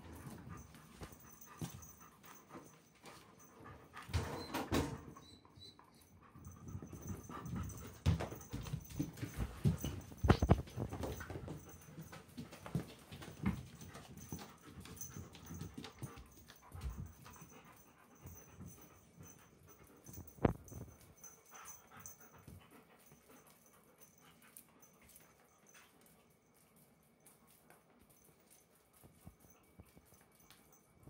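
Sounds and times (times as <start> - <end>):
dog panting: 0.0 - 26.6
thumps and knocks: 6.6 - 11.7.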